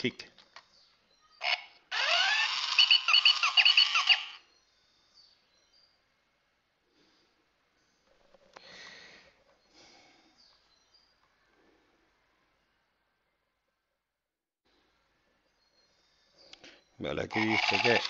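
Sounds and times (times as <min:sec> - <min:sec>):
toy robot electronic bleeps: 0:02.0 - 0:04.4.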